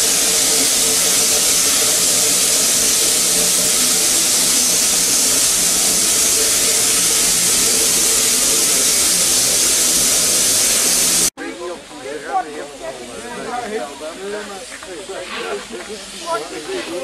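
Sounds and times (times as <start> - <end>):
steam locomotive hissing steam: 0.0 - 11.3.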